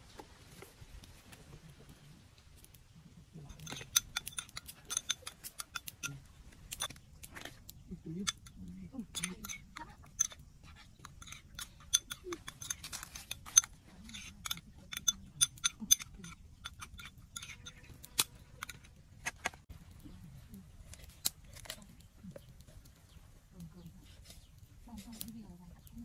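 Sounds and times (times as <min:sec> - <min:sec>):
spoon clinking on ceramic bowl: 0:11.0 - 0:17.8.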